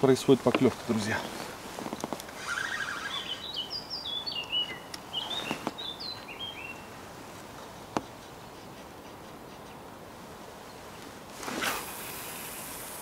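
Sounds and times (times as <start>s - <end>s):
low bird trill: 2.4s - 6.9s
songbird singing whistled notes: 2.4s - 6.9s.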